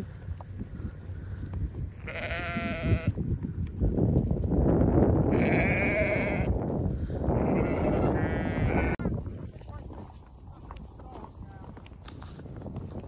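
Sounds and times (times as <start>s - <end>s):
sheep bleating: 2.0s - 3.1s, 5.3s - 6.5s, 7.4s - 9.0s.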